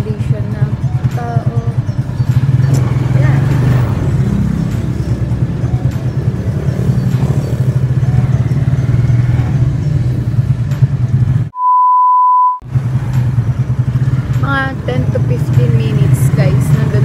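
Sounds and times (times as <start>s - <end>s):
motorcycle engine droning: 0.0s - 11.5s, 12.6s - 17.0s
steady beep tone: 11.5s - 12.6s.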